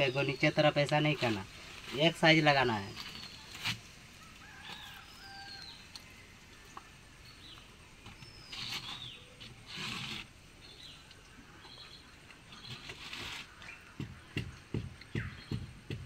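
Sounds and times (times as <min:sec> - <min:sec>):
small birds chirping: 0:00.0 - 0:16.0
brief scraping noises: 0:08.4 - 0:10.3.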